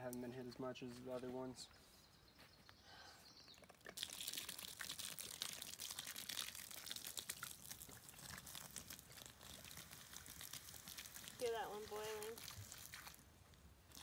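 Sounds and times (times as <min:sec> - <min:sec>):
dense crackling and crunching: 0:03.6 - 0:13.2.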